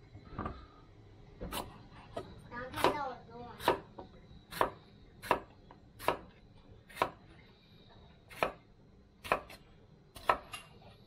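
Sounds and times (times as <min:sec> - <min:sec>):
knife slicing pepper: 0:04.5 - 0:06.3, 0:08.3 - 0:08.6, 0:09.2 - 0:09.6, 0:10.2 - 0:10.7.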